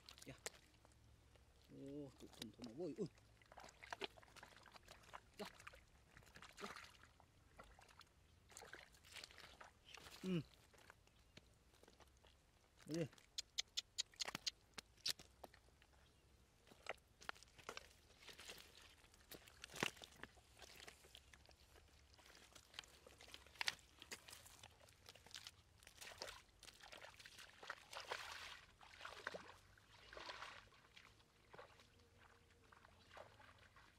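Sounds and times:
splashing water: 0:01.6 - 0:10.9, 0:16.8 - 0:33.9
wet slaps and squelches in mud: 0:02.1 - 0:02.8, 0:03.4 - 0:10.4, 0:12.9 - 0:15.6, 0:16.8 - 0:21.4, 0:22.1 - 0:31.8.

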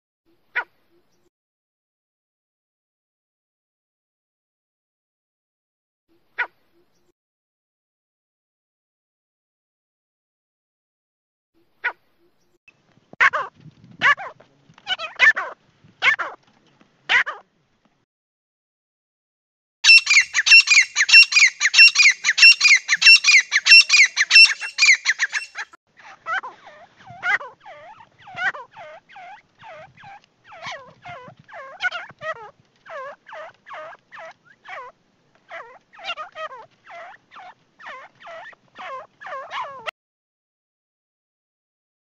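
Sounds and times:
francolin calling: 0:19.8 - 0:25.7.

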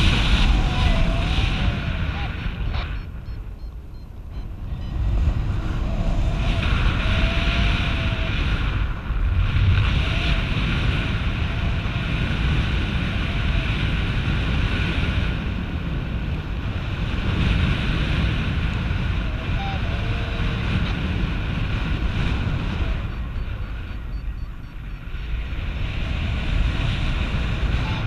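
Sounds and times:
wind rushing over microphone: 0:00.0 - 0:28.0.

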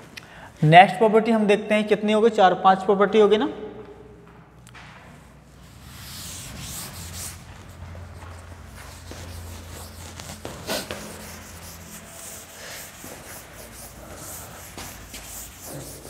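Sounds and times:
duster rubbing on blackboard: 0:05.6 - 0:16.0.

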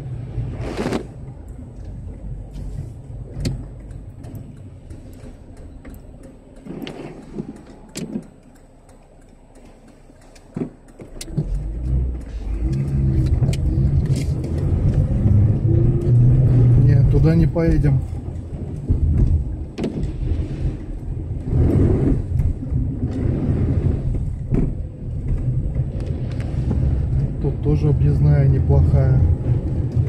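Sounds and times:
car engine running: 0:00.0 - 0:30.0
light scattered ticks: 0:01.4 - 0:15.1.

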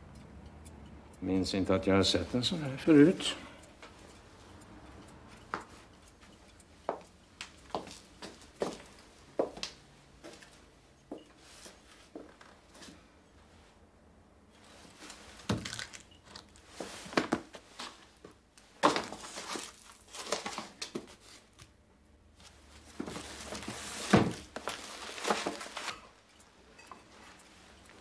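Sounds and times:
paper rustling: 0:23.8 - 0:26.1.

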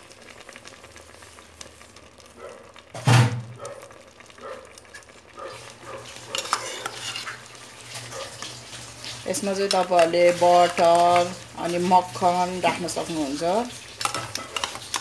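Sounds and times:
metal ladle scraping steel bowl: 0:06.1 - 0:09.2, 0:14.0 - 0:15.0.

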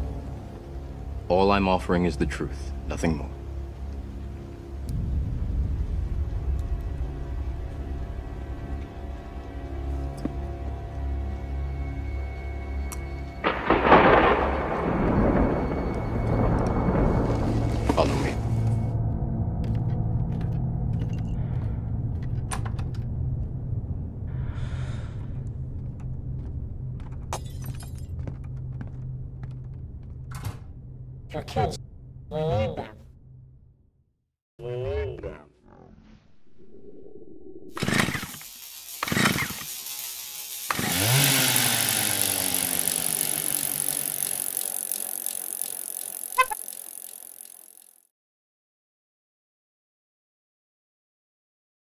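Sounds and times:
low rumble: 0:04.1 - 0:09.5, 0:13.4 - 0:20.8, 0:35.8 - 0:38.1
sharp mechanical clanks: 0:37.8 - 0:48.0
whirring rattling chain: 0:37.8 - 0:48.0.

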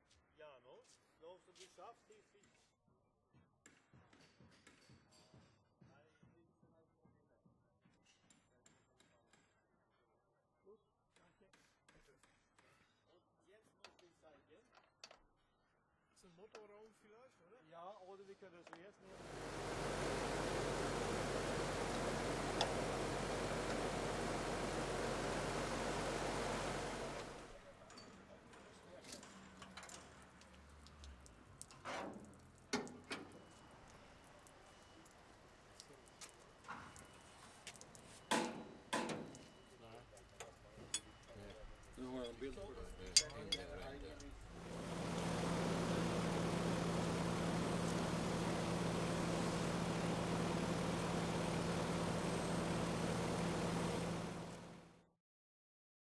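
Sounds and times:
street sweeper engine and fan: 0:19.1 - 0:29.5, 0:43.6 - 0:55.0.

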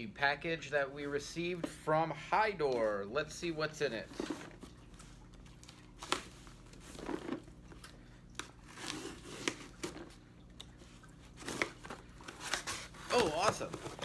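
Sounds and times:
cardboard packaging tearing and rustling: 0:08.5 - 0:10.1, 0:11.3 - 0:14.0.

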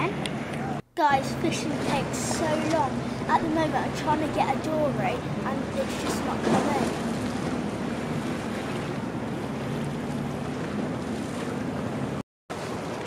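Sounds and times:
wind buffeting microphone: 0:00.0 - 0:12.2
sea water washing against seawall: 0:00.0 - 0:13.0.

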